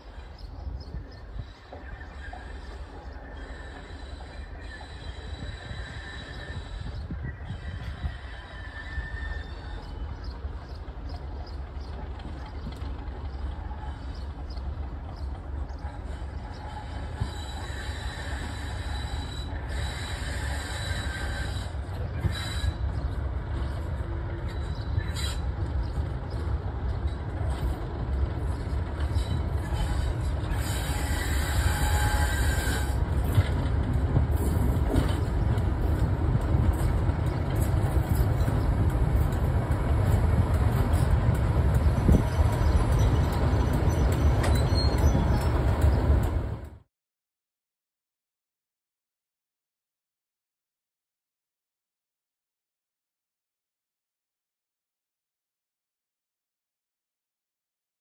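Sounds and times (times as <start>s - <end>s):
locomotive engine rumble: 0.0s - 46.8s
wheels squealing: 27.0s - 46.3s.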